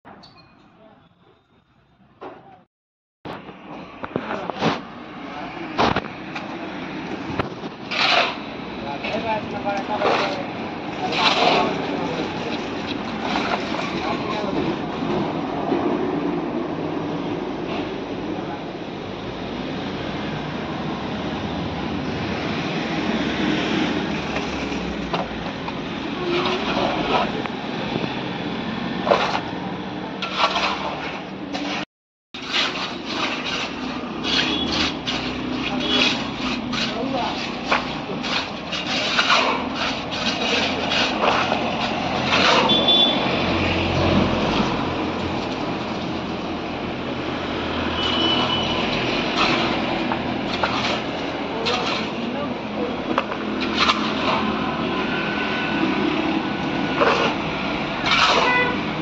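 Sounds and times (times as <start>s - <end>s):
shovel scraping wet concrete: 5.7s - 14.9s, 23.1s - 27.7s, 29.0s - 29.6s, 30.2s - 46.4s, 48.0s - 59.0s.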